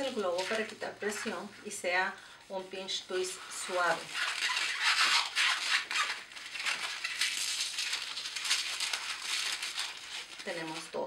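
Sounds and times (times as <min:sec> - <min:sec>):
balloon rubbing and squeaking: 0:02.8 - 0:10.9.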